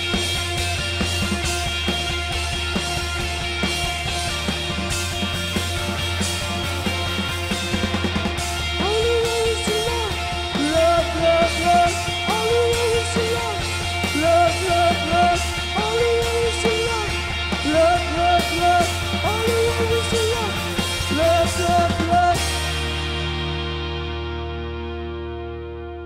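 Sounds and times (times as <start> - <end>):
indie rock band playing: 0.0 - 26.0
male lead vocal singing: 8.7 - 22.6.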